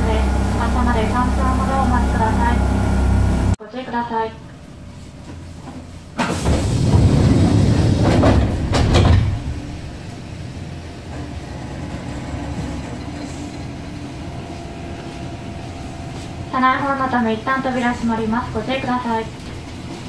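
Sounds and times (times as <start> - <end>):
train rumbling past: 0.0 - 3.6, 6.2 - 20.0
standing train hum: 0.0 - 20.0
train wheel clacks: 5.7 - 10.2, 11.0 - 20.0.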